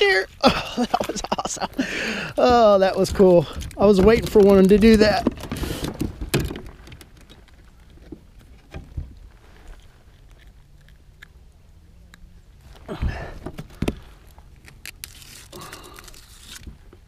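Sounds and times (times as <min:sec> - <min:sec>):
gear clicking and knocking in kayak: 0:02.2 - 0:09.2.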